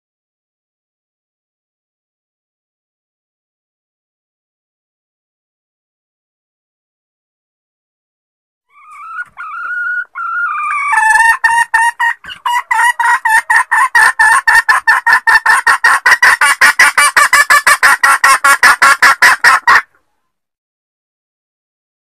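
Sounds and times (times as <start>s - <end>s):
hen clucking call: 8.7s - 20.0s.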